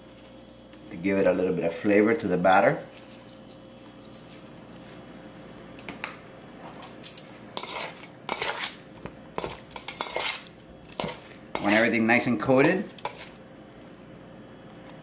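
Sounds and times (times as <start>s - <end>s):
utensil scraping metal bowl: 7.6s - 8.8s, 9.4s - 12.0s, 12.6s - 13.4s.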